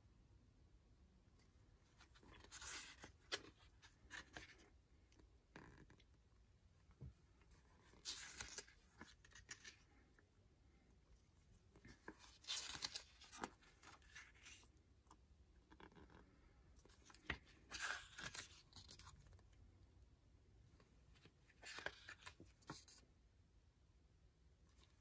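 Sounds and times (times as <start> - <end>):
paper pages rustling: 7.6 - 9.9, 11.8 - 14.7, 21.2 - 23.0.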